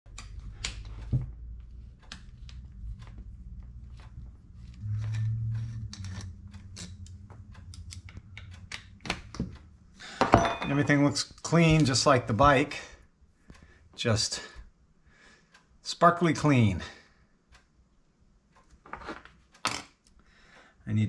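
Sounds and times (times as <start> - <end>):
low steady hum: 0.1 - 15.2.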